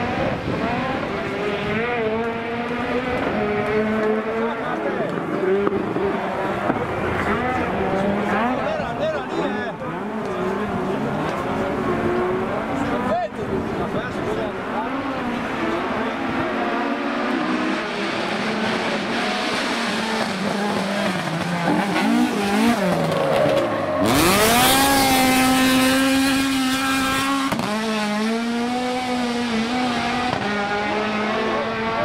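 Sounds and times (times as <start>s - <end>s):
rally car engine accelerating: 0.0s - 32.0s.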